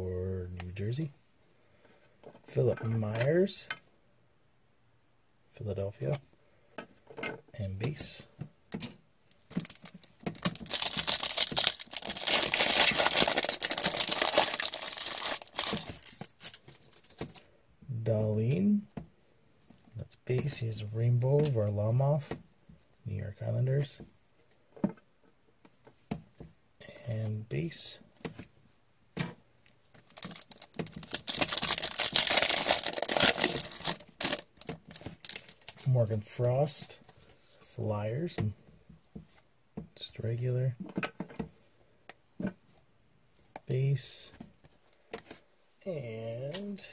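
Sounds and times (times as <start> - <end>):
foil wrapper tearing and crinkling: 9.6 - 16.6, 30.0 - 35.8.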